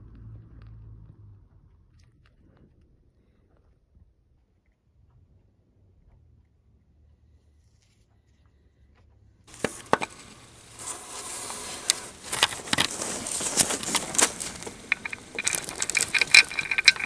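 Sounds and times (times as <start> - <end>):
gloved hands rustling: 9.5 - 17.0
metal clicks and knocks: 9.5 - 17.0.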